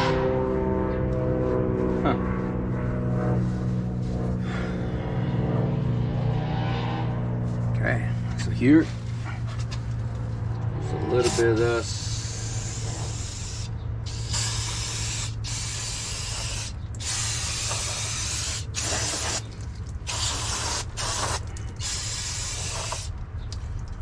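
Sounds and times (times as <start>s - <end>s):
aerosol spray bursts: 11.9s - 19.4s, 20.1s - 23.1s.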